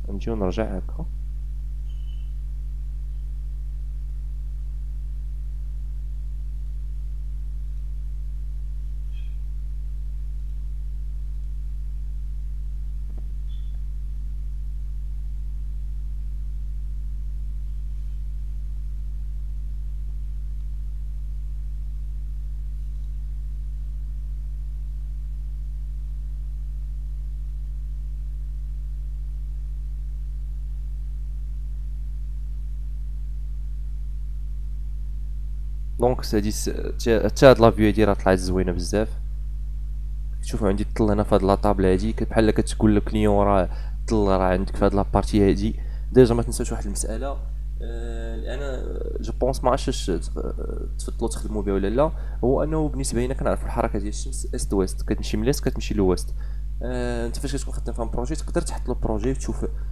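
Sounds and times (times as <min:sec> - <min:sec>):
low electrical hum: 0:00.0 - 0:59.9.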